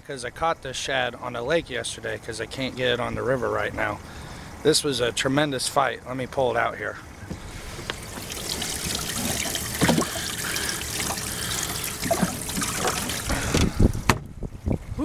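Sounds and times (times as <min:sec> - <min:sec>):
water trickling and splashing: 0:07.2 - 0:15.0.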